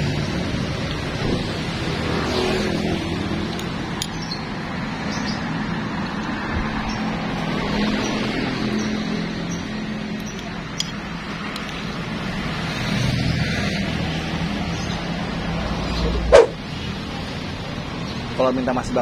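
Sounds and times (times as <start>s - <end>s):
roadside traffic: 0.0s - 19.0s
vehicle engines running: 0.0s - 19.0s.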